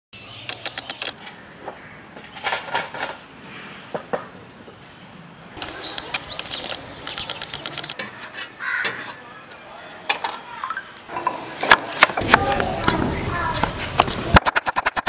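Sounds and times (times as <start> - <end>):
bird chirps: 5.6 - 8.1.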